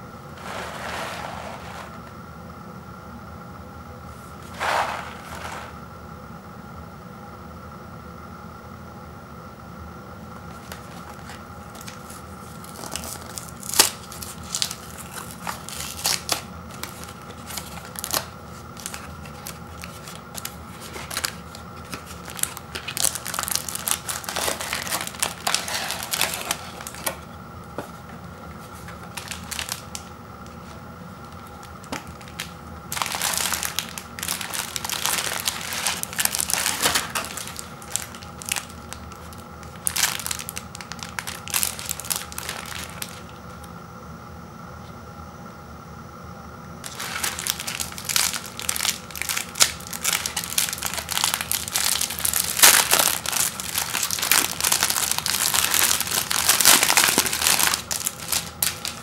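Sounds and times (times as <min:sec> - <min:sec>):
cellophane crinkling: 0:04.4 - 0:05.8, 0:10.4 - 0:43.6, 0:46.8 - 0:59.0
cardboard box tearing: 0:04.5 - 0:05.7.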